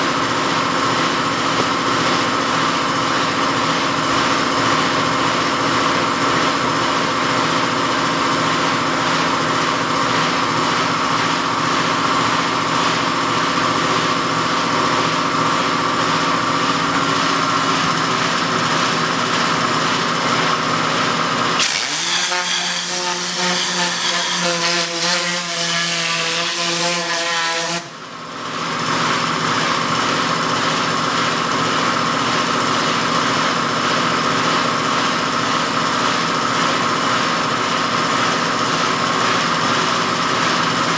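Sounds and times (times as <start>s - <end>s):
machine hum and hiss: 0.0s - 40.9s.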